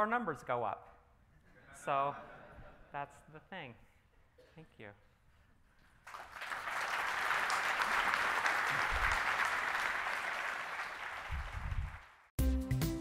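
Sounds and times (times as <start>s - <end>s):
audience applauding: 6.0s - 12.3s.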